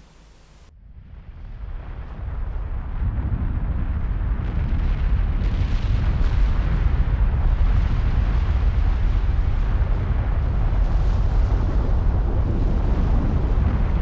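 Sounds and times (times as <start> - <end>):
lava fountain rumbling: 0.9 - 14.0.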